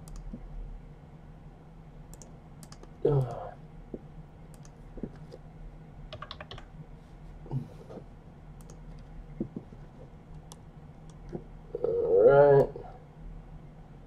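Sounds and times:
clicks: 0.0s - 0.4s, 2.1s - 5.4s, 8.6s - 11.4s
keyboard keystrokes: 6.1s - 6.7s.

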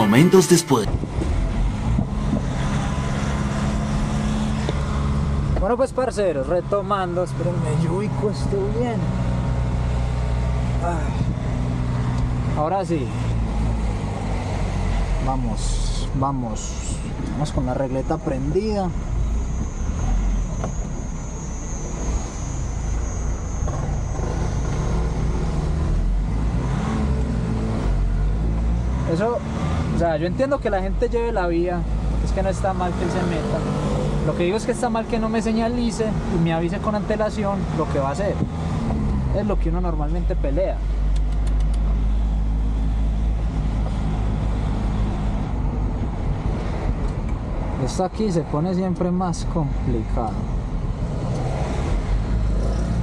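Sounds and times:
truck engine drone: 0.0s - 5.6s, 7.1s - 29.9s
road noise: 0.0s - 53.0s
thin high whine: 18.2s - 25.4s.

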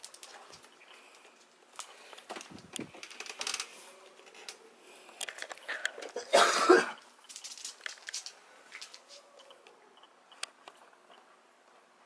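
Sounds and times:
rough cough: 6.2s - 7.0s.

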